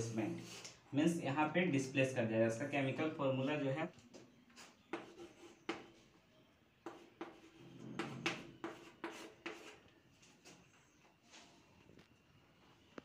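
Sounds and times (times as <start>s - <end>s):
chalk writing on blackboard: 0.4s - 0.8s, 4.5s - 6.2s, 6.8s - 11.0s.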